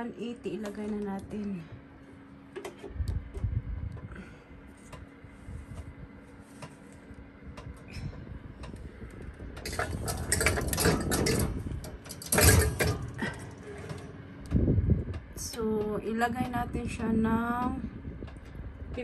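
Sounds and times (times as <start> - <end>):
metal tin clattering on oven rack: 9.6 - 14.2.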